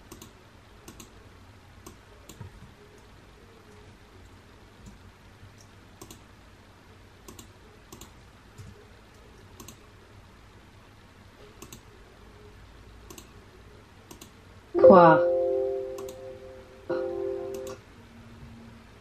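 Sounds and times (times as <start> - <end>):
computer mouse clicking: 0.0 - 1.2, 5.6 - 6.2, 7.2 - 9.8, 11.6 - 11.9, 13.0 - 13.4, 14.0 - 14.4.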